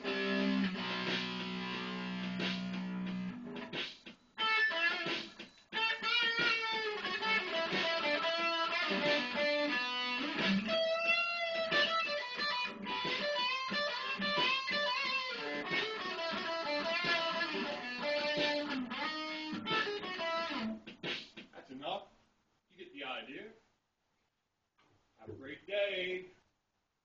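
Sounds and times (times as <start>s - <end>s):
electric guitar rock melody: 0.0s - 3.7s, 4.4s - 20.9s.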